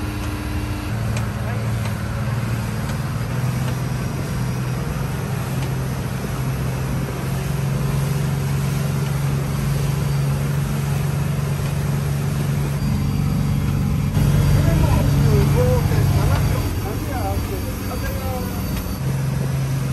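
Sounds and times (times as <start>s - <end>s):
boat diesel engine droning: 0.0s - 19.9s
rush of wake and wind: 0.0s - 19.9s.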